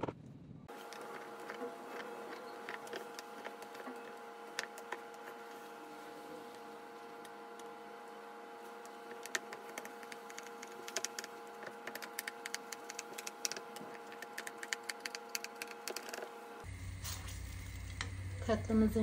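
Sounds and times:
faint hum: 0:00.0 - 0:19.0.

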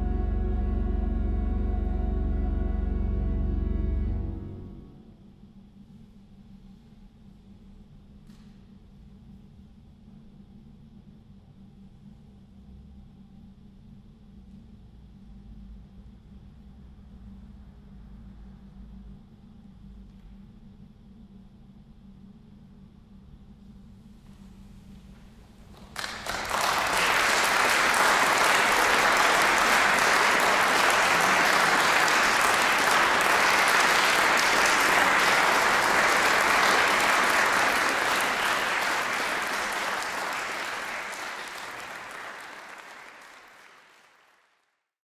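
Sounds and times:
audience applauding: 0:25.7 - 0:44.6.

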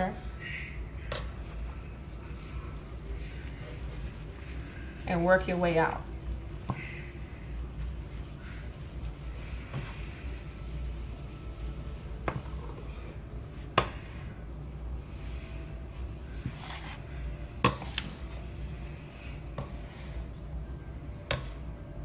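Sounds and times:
scraper scraping countertop: 0:16.3 - 0:17.1.

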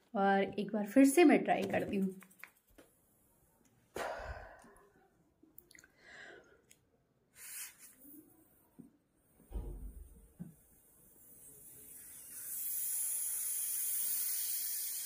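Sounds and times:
puffs of breath: 0:04.0 - 0:04.9
low thud: 0:09.5 - 0:10.2.

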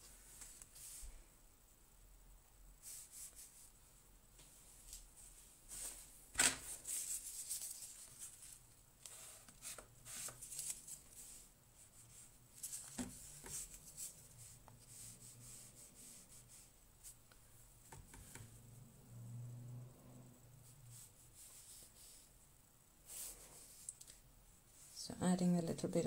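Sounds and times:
paintbrush scrubbing on paper: 0:02.8 - 0:03.8, 0:06.7 - 0:17.2, 0:20.6 - 0:22.4, 0:23.0 - 0:24.0.

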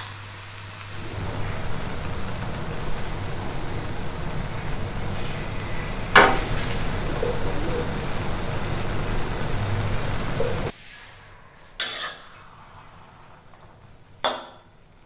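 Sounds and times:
frying hiss in a wok: 0:00.0 - 0:15.0
metal spatula clanking on wok: 0:11.8 - 0:12.2.

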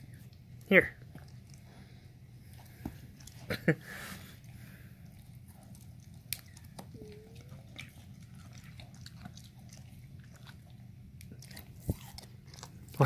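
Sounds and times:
dog chewing cucumber: 0:02.4 - 0:03.5, 0:04.4 - 0:13.0.

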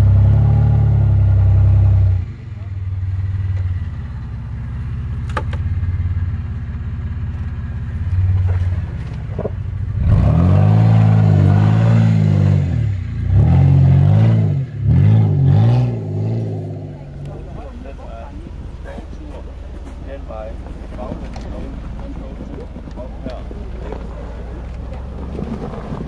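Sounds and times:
pickup truck engine revving: 0:00.0 - 0:06.6, 0:07.7 - 0:26.0.

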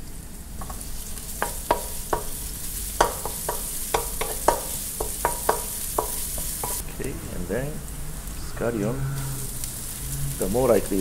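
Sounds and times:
garlic sizzling in oil: 0:00.0 - 0:11.0
spatula tapping and scraping pan: 0:00.6 - 0:06.8.

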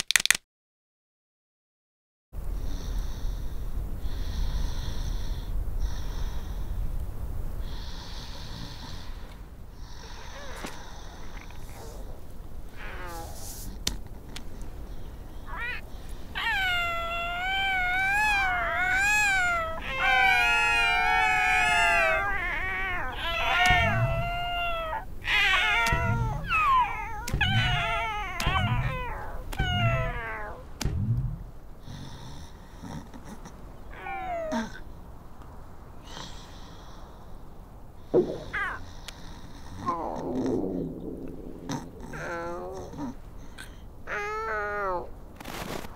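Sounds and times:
cartoon seals crying: 0:16.4 - 0:30.6
low thud: 0:30.8 - 0:31.6, 0:38.1 - 0:38.6.

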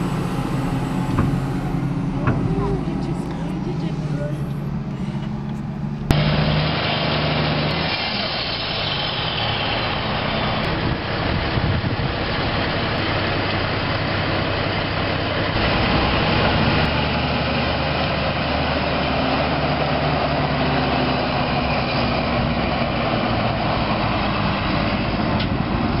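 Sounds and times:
diesel engine clattering: 0:00.0 - 0:26.0.

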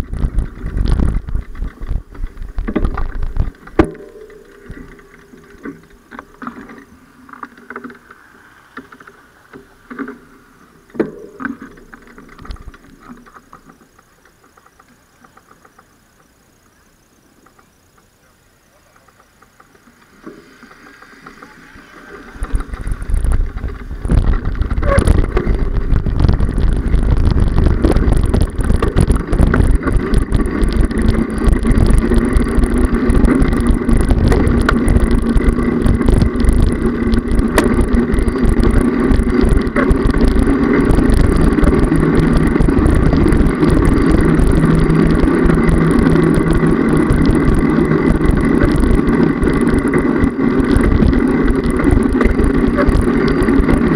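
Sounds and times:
wind rush on microphone: 0:00.0 - 0:05.1, 0:22.2 - 0:53.9
bicycle road rumble: 0:00.0 - 0:53.9.

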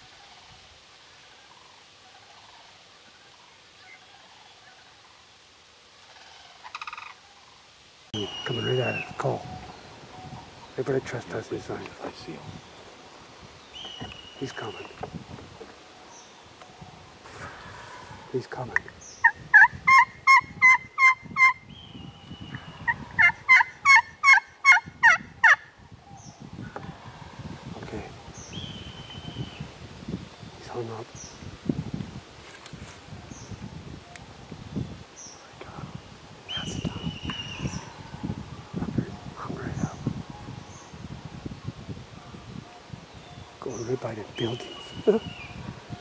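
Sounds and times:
steady hiss: 0:00.0 - 0:19.6, 0:26.1 - 0:46.0
turkey yelping: 0:19.2 - 0:21.6, 0:22.9 - 0:25.6.

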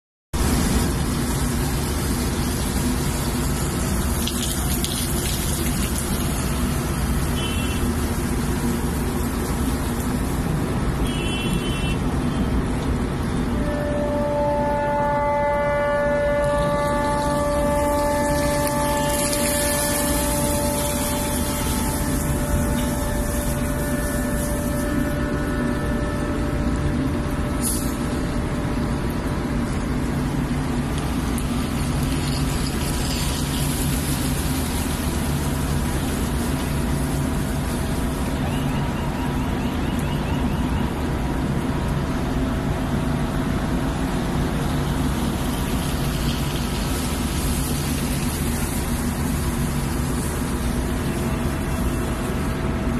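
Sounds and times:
long horn tone: 0:02.1 - 0:09.3, 0:11.0 - 0:41.7, 0:46.5 - 0:52.9
engines droning: 0:12.0 - 0:52.9.

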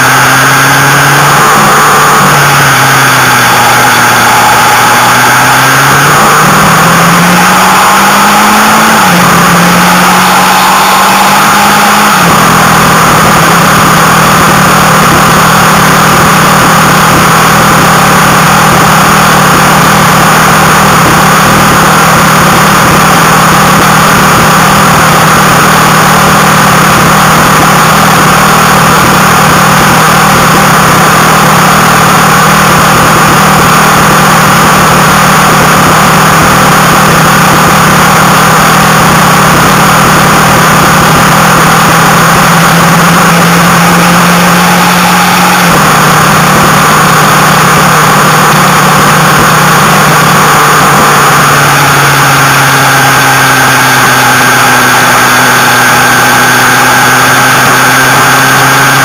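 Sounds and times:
motorcycle engine cruising: 0:00.0 - 0:59.0.

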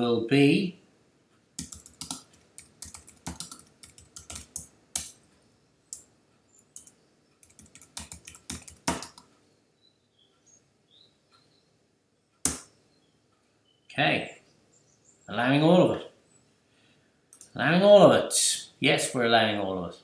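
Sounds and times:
computer keyboard typing: 0:01.6 - 0:05.2, 0:05.9 - 0:09.3.

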